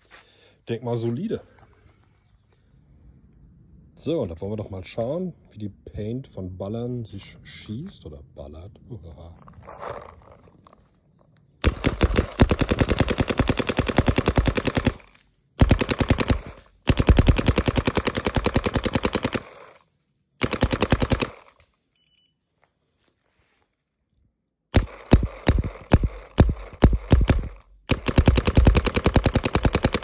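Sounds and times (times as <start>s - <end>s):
paintball marker firing rapidly: 11.6s - 19.8s, 20.4s - 21.6s, 24.7s - 30.0s.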